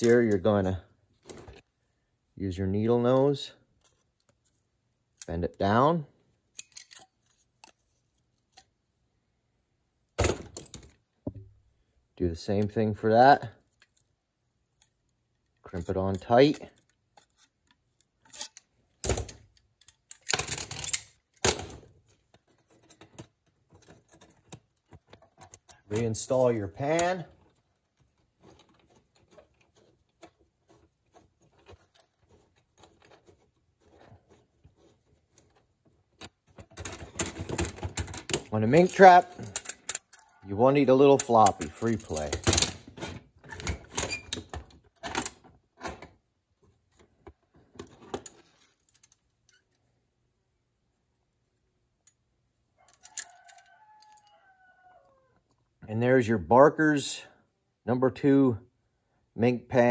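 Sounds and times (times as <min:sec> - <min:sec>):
screwdriver clicking and scraping on metal trap: 0:06.5 - 0:08.7, 0:13.6 - 0:18.8, 0:19.4 - 0:21.4, 0:22.3 - 0:34.4, 0:36.2 - 0:42.8
steel tools clinking on metal: 0:38.6 - 0:42.8.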